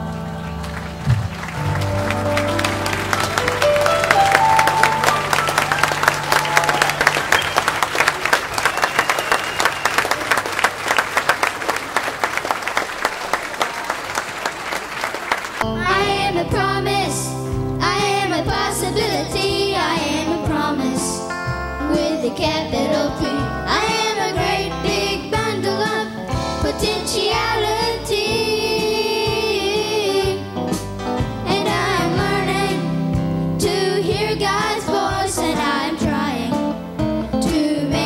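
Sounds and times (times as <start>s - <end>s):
band music: 0.0s - 11.9s, 15.3s - 38.0s
audience applauding: 0.0s - 15.7s
boys singing with band: 15.7s - 21.2s, 21.8s - 30.5s, 31.5s - 33.0s, 37.4s - 38.0s.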